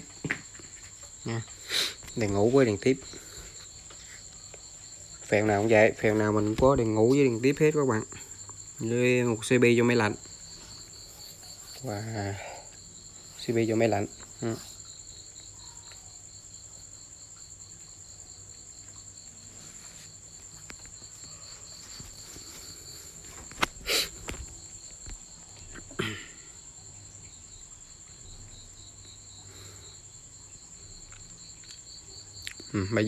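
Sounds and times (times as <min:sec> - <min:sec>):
high-pitched insect trill: 0:00.0 - 0:33.0.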